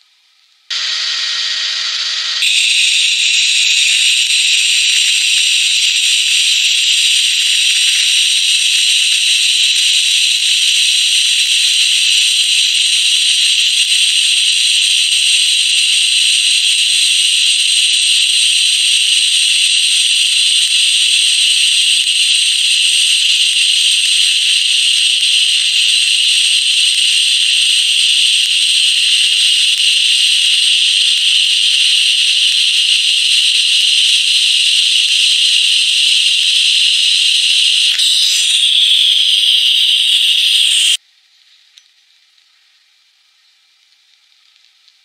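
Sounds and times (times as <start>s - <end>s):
faint hum: 0.0s - 12.0s
welding arc hissing: 0.7s - 41.0s.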